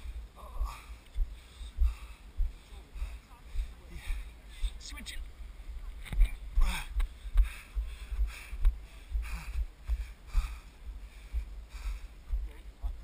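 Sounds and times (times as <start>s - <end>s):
heavy footsteps thumping: 6.1s - 13.0s.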